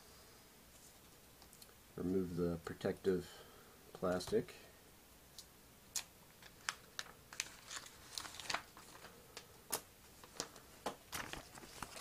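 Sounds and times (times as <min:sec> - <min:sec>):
plastic film peeling off screen: 0:06.4 - 0:09.1.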